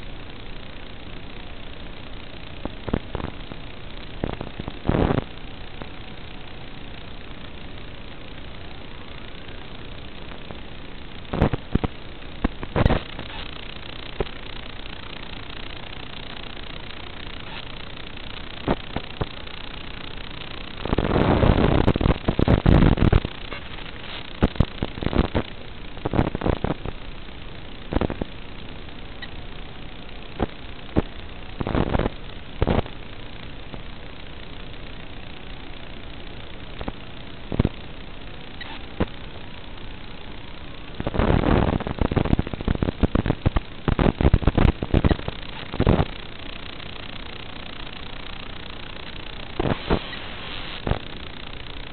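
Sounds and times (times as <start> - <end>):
rough burst of noise: 0.0 - 7.4, 30.2 - 51.9
radio static hiss and crackle: 0.0 - 51.9.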